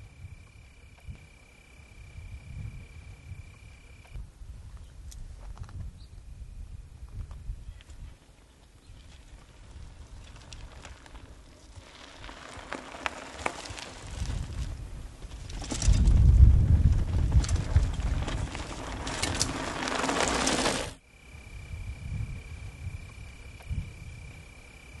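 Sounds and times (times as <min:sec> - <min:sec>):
bike rolling over gravel: 0:07.7 - 0:21.0.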